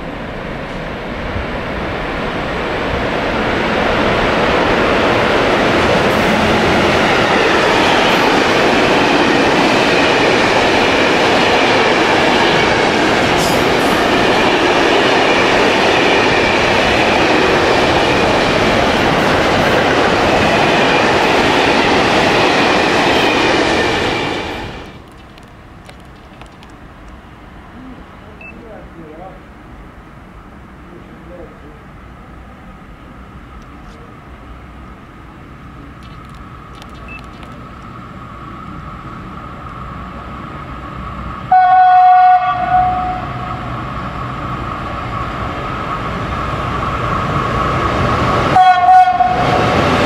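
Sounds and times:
train wheels rumbling on rails: 0.0s - 27.2s, 35.7s - 50.0s.

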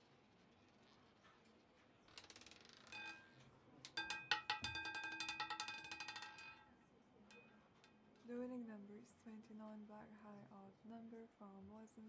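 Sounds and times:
roulette ball clattering on wheel: 2.0s - 8.0s.

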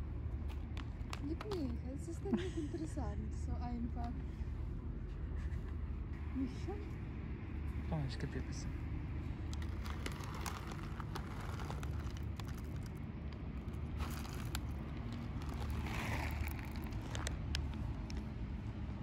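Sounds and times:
low traffic rumble: 0.0s - 19.0s
cat crunching food: 9.5s - 18.3s.

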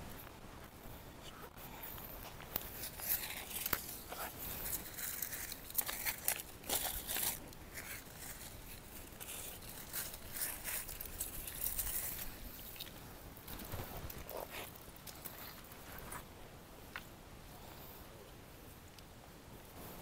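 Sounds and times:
bags being handled rustling: 1.7s - 16.3s.

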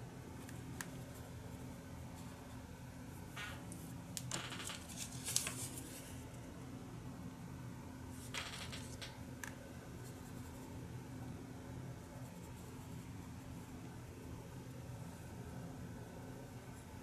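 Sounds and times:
steady low hum: 0.0s - 17.0s
paper rustling and sliding: 4.3s - 6.2s.

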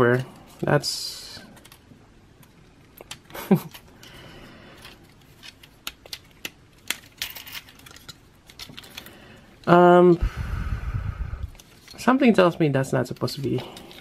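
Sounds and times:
plastic toy parts clicking: 4.8s - 9.8s.

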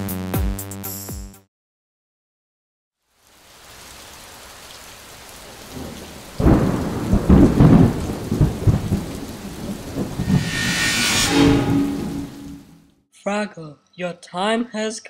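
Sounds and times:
steady rain: 3.0s - 10.6s
thunder clap rumbling: 5.7s - 12.7s.

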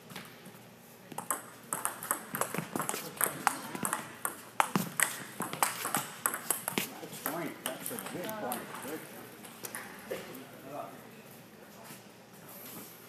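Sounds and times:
rackets striking shuttlecock: 1.1s - 8.6s.

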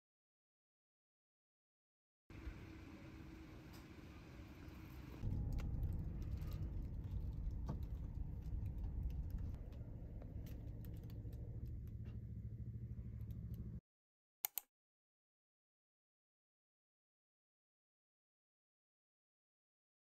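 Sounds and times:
car engine rumble: 2.3s - 13.8s.

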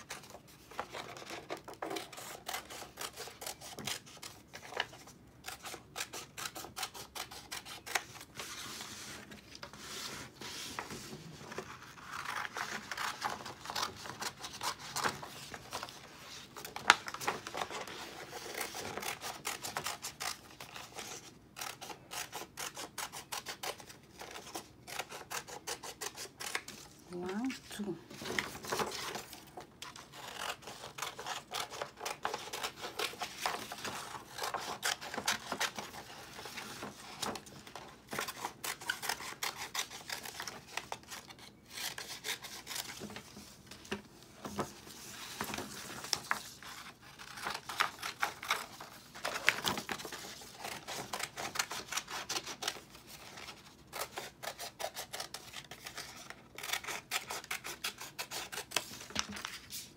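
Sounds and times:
scissors snipping paper: 0.0s - 8.3s, 16.7s - 27.5s, 28.3s - 43.2s, 45.3s - 59.7s
paper rustling: 7.8s - 19.6s, 28.1s - 54.5s, 58.5s - 59.9s.

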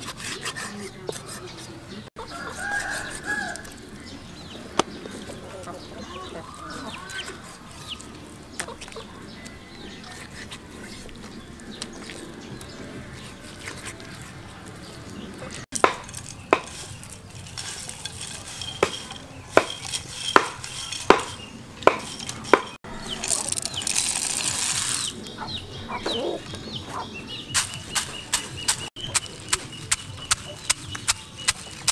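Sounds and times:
peanuts poured into stone mortar: 16.1s - 21.1s, 22.1s - 25.2s.

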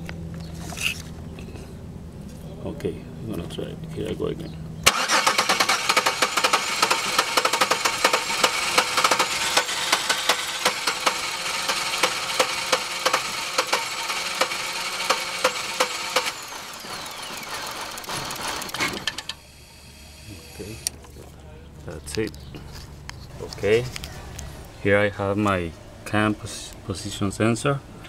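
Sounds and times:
engine cranking on starter: 4.8s - 21.0s.

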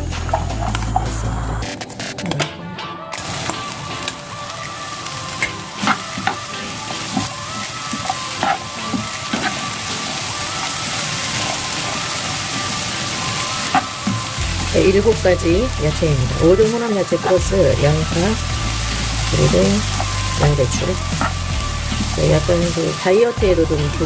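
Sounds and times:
vegetables sizzling in a frying pan: 3.2s - 24.0s
spatula scraping a pan: 5.4s - 10.3s.

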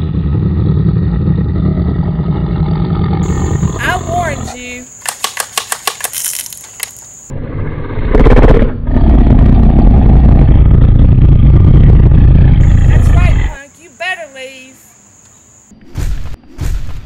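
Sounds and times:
toy water gun spurts: 5.0s - 7.1s
heavy steady rumble: 8.2s - 13.6s.

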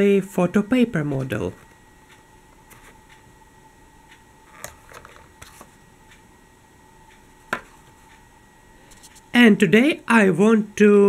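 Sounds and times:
hand handling paper model: 4.5s - 5.7s.

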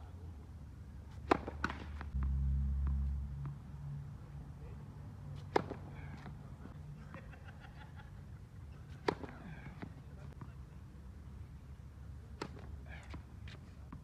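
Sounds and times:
tennis ball bouncing: 1.1s - 3.6s, 5.4s - 6.3s, 8.9s - 10.5s
racket striking ball: 1.2s - 3.1s, 5.4s - 6.3s, 9.0s - 9.9s.

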